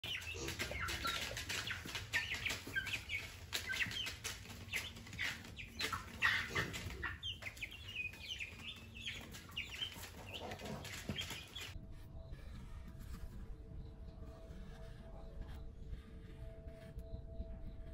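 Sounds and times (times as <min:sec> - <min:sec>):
young chickens clucking and cheeping: 0:00.0 - 0:11.8.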